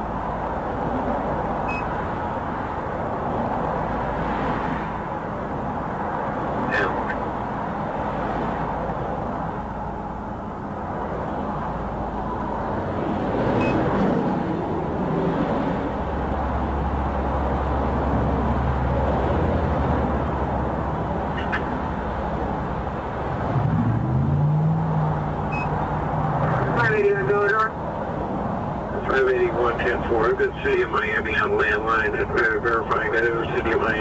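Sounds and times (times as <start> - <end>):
low engine hum: 0.0 - 34.0
passing vehicles rushing: 0.0 - 34.0
engine tone rising in pitch: 23.3 - 25.8.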